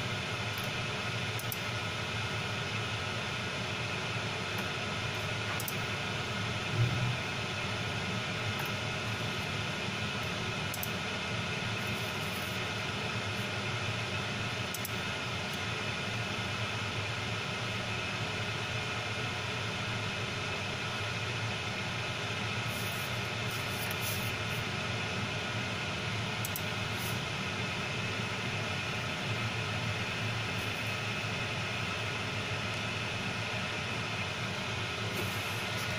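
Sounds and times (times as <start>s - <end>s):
fan hum and hiss: 0.0s - 35.9s.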